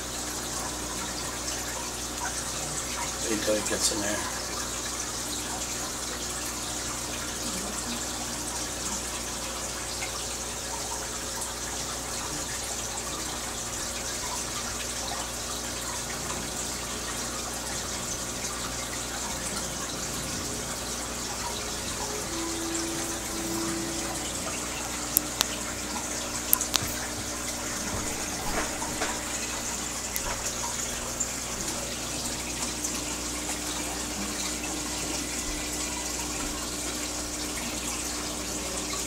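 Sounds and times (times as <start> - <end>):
aquarium water rushing and splashing: 0.0 - 39.0
bubbles rising: 12.1 - 39.0.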